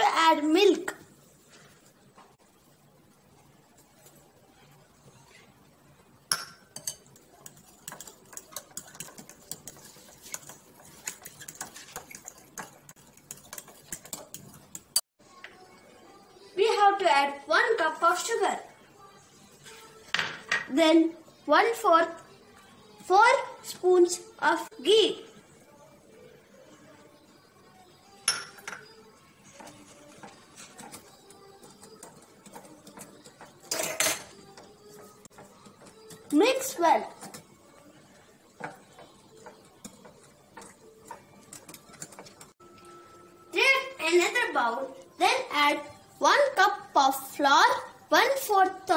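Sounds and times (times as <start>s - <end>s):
spoon clinking against bowl: 6.3s - 15.0s, 28.2s - 29.0s
spoon stirring batter in bowl: 6.3s - 15.0s, 27.4s - 43.2s.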